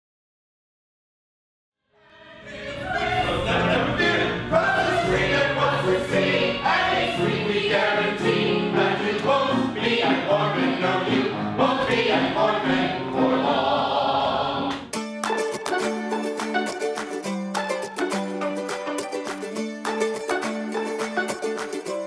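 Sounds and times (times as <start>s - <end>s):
choir singing: 2.0s - 14.9s.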